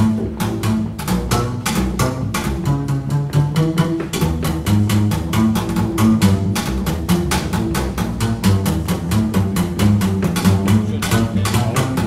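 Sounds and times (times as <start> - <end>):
music with sharp beat and bass: 0.0 - 12.0.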